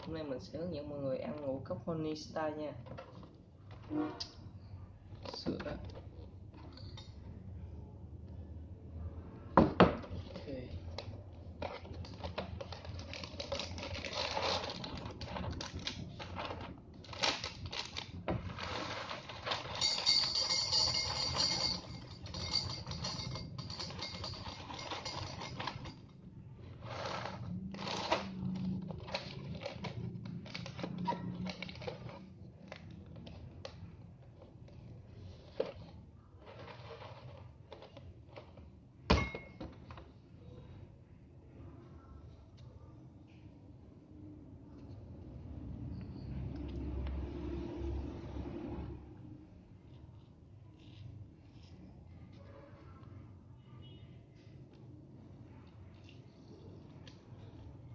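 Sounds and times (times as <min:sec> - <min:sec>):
plastic bag crinkling: 0:11.7 - 0:23.0, 0:26.8 - 0:33.4.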